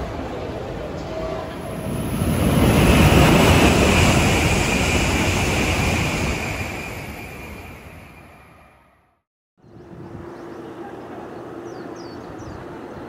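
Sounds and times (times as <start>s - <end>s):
high-speed train passing: 0.0s - 9.2s.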